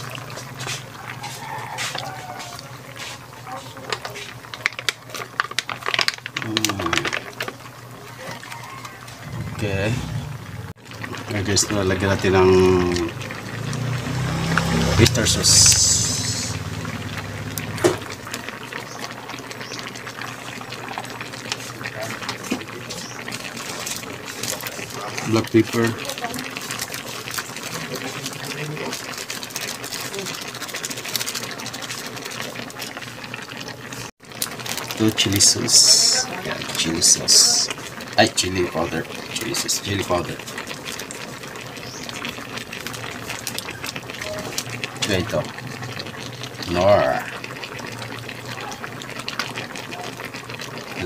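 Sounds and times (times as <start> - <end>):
soft bubbling simmer: 0.0 - 51.0
plastic sachet crinkling: 3.8 - 7.7, 26.1 - 32.9, 34.3 - 36.6
low steady hum: 9.2 - 11.4.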